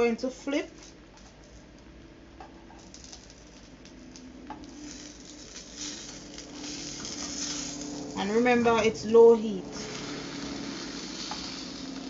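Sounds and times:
food sizzling in frying pan: 2.8s - 8.8s, 9.4s - 12.0s.

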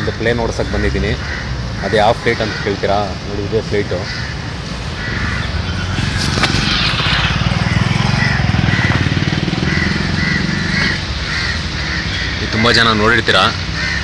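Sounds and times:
vehicle engine running: 5.0s - 14.0s.

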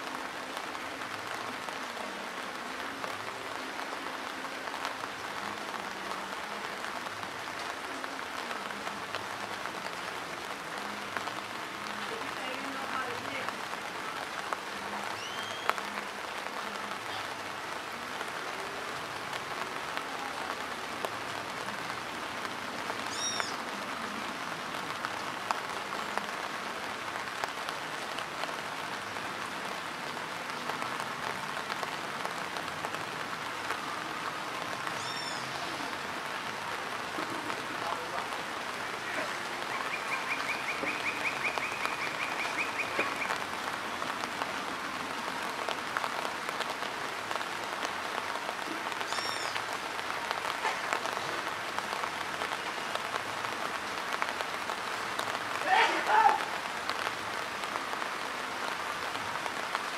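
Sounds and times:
rain falling on dirt road: 0.0s - 59.9s
bird call: 15.2s - 15.8s, 23.1s - 23.6s, 35.0s - 35.4s, 39.6s - 43.4s, 49.1s - 49.6s.

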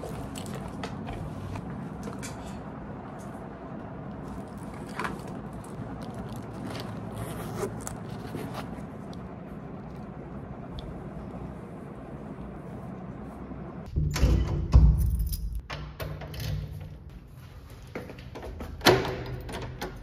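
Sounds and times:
low background hum: 0.0s - 20.0s.

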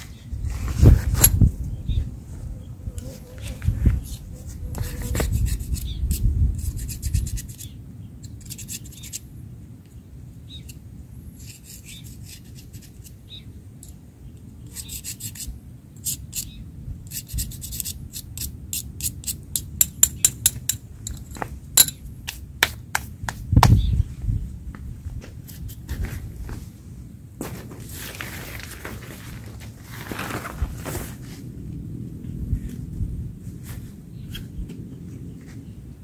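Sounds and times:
rubbing and scratching handling noise: 3.0s - 9.2s, 25.2s - 31.5s.

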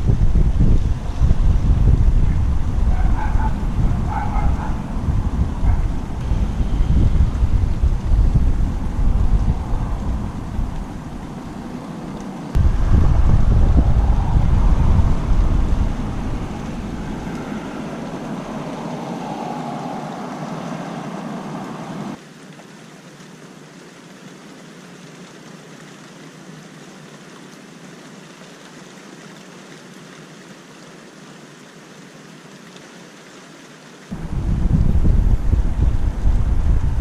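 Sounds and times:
thunder rumbling: 0.0s - 22.2s, 34.1s - 37.0s.

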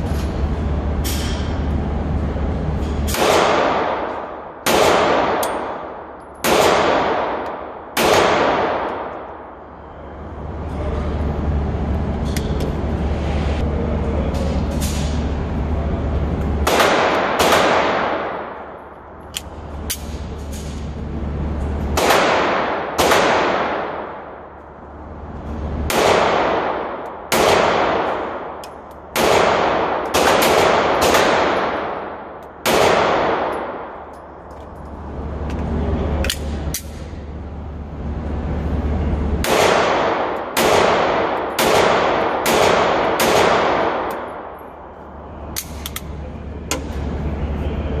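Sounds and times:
pistol shots echoing indoors: 3.0s - 10.0s, 16.6s - 20.8s, 21.8s - 24.6s, 25.8s - 34.5s, 39.4s - 47.2s.

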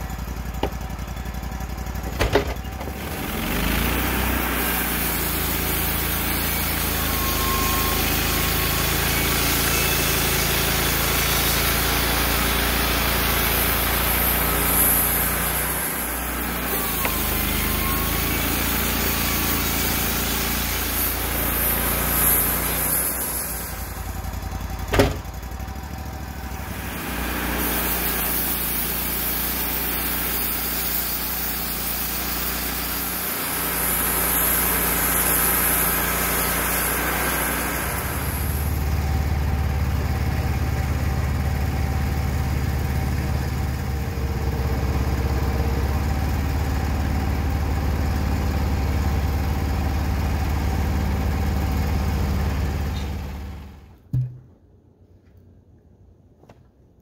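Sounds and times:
saw blade cutting log: 0.0s - 1.3s, 2.0s - 24.2s, 26.5s - 38.9s
engine drone: 0.0s - 54.4s.

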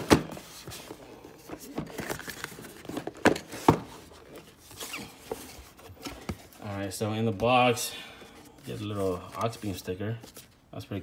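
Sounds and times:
cardboard boxes tapping and scraping: 0.0s - 7.8s.

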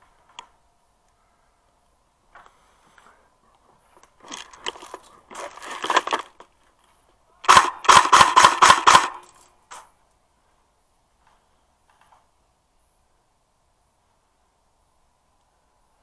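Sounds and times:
airsoft rifle shots: 7.4s - 9.8s.

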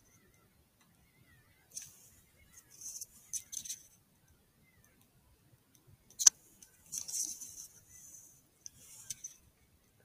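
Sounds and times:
handling rustles on microphone: 6.9s - 9.4s.

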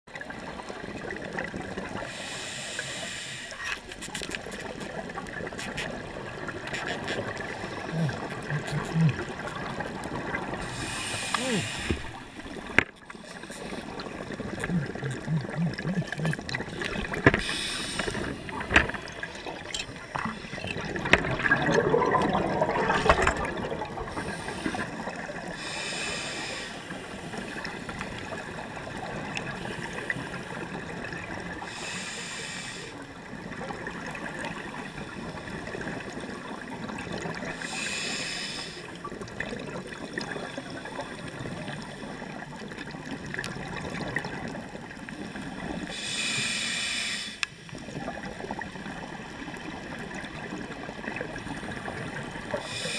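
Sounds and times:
steady underwater rush: 0.1s - 52.9s
regulator breathing hiss: 2.1s - 3.7s, 10.6s - 13.9s, 17.4s - 18.7s, 24.1s - 24.9s, 25.6s - 28.0s, 31.7s - 33.0s, 37.6s - 38.9s, 45.9s - 47.7s, 52.6s - 52.9s
rush of bubbles: 4.9s - 31.6s, 38.9s - 45.9s.

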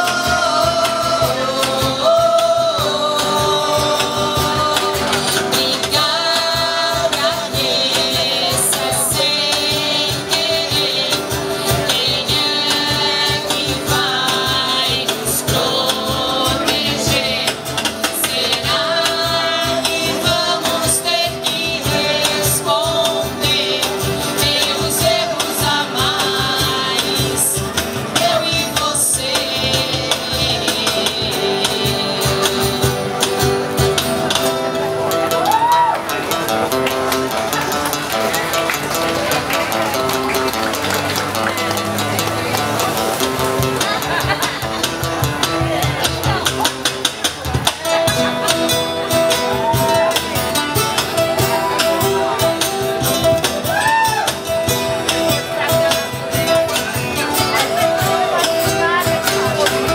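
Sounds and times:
person singing: 0.0s - 34.0s
cajon beat: 0.0s - 59.9s
strummed acoustic guitars: 0.0s - 59.9s.

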